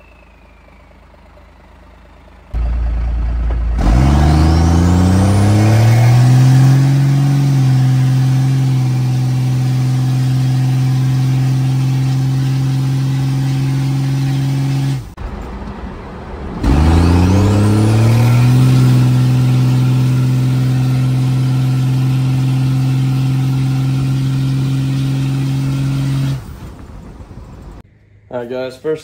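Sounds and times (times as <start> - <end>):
turbo whistle: 0.0 - 1.6
diesel engine drone: 0.0 - 29.0.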